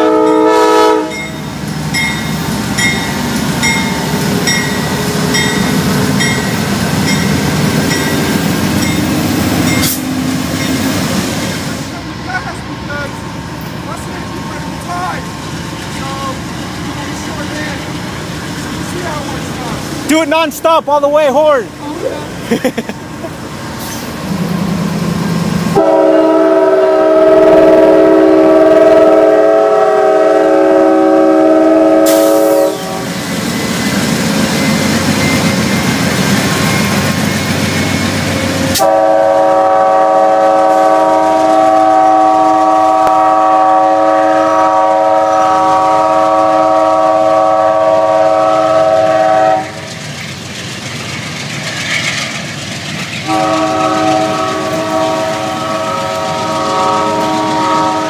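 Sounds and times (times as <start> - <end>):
locomotive air horn chord: 0.0 - 1.2, 25.8 - 33.1, 38.7 - 49.9, 53.2 - 58.0
passing train rumble: 0.0 - 58.0.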